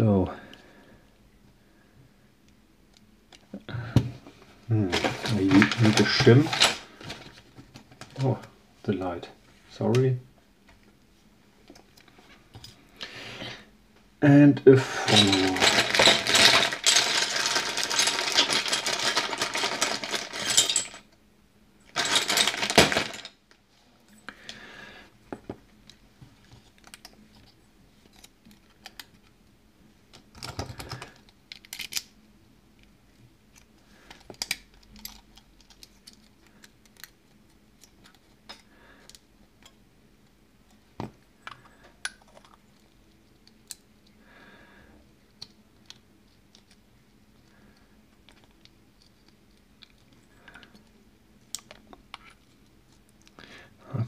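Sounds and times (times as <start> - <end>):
clatter of hard objects: 4.9 - 8.2, 15.0 - 21.1, 21.9 - 23.4.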